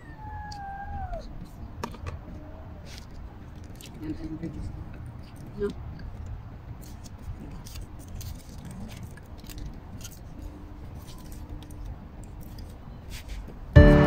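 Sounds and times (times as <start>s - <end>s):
aluminium foil crinkling: 6.8s - 13.3s
music: 13.8s - 14.0s.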